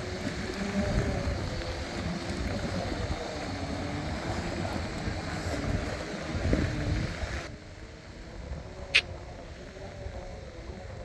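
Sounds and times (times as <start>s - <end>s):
tyres rolling over gravel: 0.0s - 7.5s
wind on microphone: 0.0s - 11.0s.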